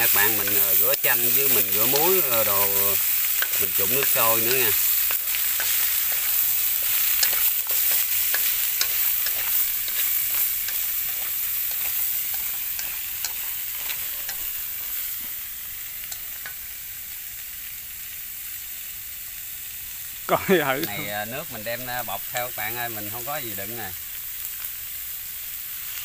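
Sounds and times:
chopsticks clicking and scraping pan: 0.0 - 16.6, 20.8 - 21.7
meat sizzling in oil: 0.0 - 26.0.

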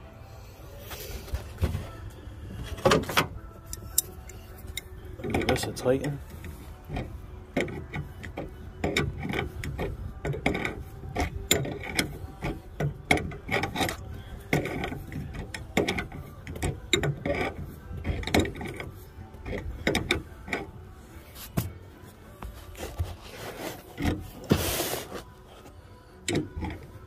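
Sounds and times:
metal fitting clicking and scraping: 2.6 - 20.8, 23.7 - 27.0.

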